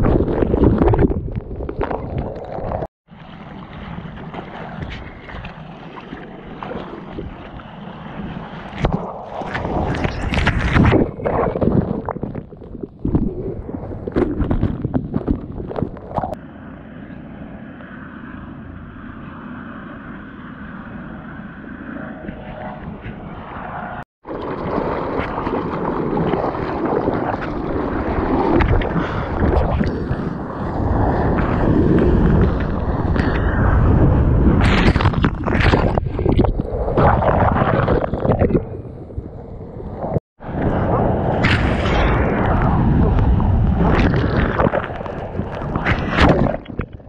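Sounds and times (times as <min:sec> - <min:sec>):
sea water splashing: 0:00.0 - 0:16.4, 0:24.2 - 0:47.0
wind buffeting microphone: 0:00.0 - 0:16.4, 0:21.9 - 0:47.0
muffled rushing water: 0:00.0 - 0:16.6, 0:24.2 - 0:47.0
loud water splashes: 0:24.2 - 0:33.8.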